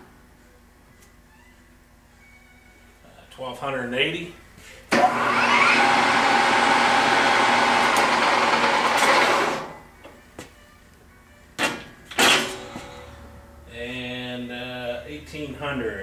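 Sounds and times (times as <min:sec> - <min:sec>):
lathe headstock whining: 0:05.0 - 0:09.7.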